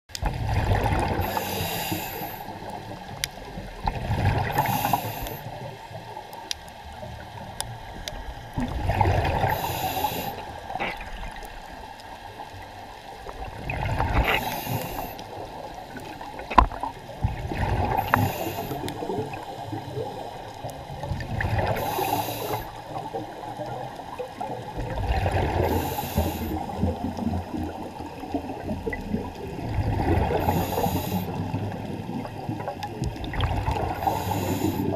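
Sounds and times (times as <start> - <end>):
exhaust bubbles gurgling: 0.1 - 6.2, 8.4 - 34.9
regulator inhale hiss: 1.2 - 2.9, 4.5 - 5.7, 9.4 - 11.0, 14.2 - 15.7, 17.8 - 20.1, 21.7 - 23.2, 25.6 - 26.8, 30.3 - 31.6, 33.8 - 34.9.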